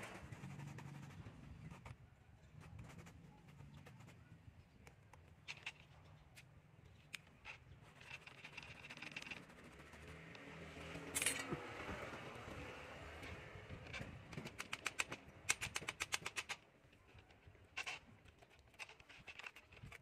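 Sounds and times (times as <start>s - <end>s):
rustling scrape: 0.0s - 4.3s, 7.2s - 10.3s
fishing rod clicks and scraping: 4.8s - 10.4s, 11.0s - 11.6s, 13.2s - 20.0s.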